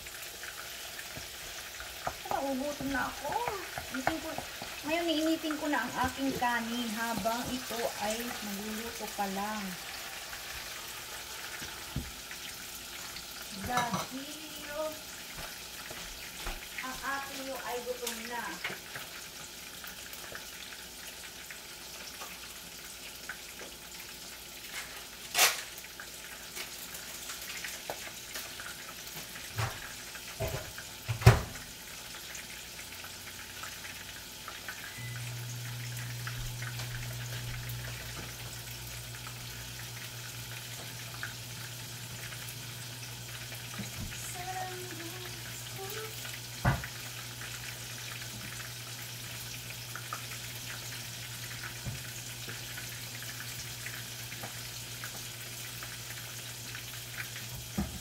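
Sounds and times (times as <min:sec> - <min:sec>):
appliance humming: 0:00.0 - 0:22.9, 0:23.5 - 0:58.0
fish sizzling in hot oil: 0:00.0 - 0:58.0
utensils knocking on cookware: 0:13.6 - 0:14.2.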